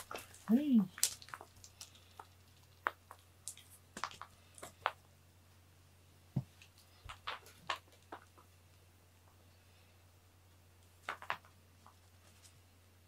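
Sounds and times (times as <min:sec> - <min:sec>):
toy mouse clicking and rustling: 0:00.0 - 0:04.8.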